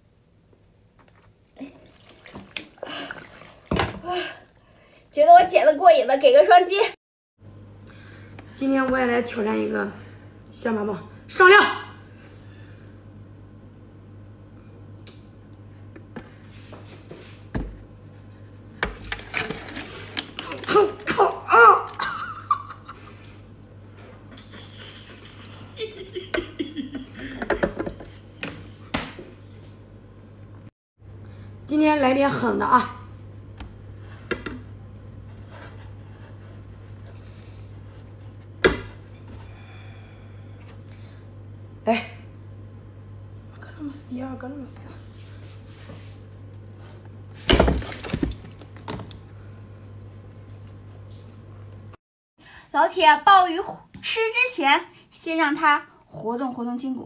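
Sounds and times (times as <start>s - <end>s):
steady low hum: 7.4s - 52.8s.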